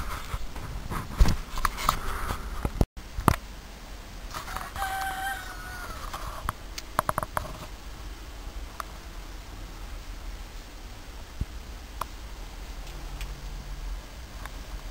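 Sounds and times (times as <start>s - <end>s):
cockerel crowing: 4.3s - 6.4s.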